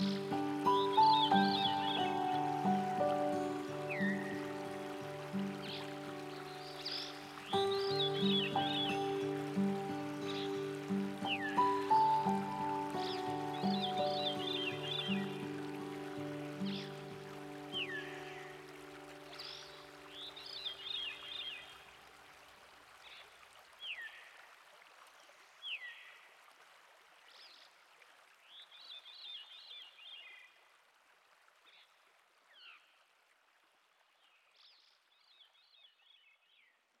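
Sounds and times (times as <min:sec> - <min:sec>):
songbird calling: 0:00.0 - 0:21.9
river water rushing: 0:00.0 - 0:27.3.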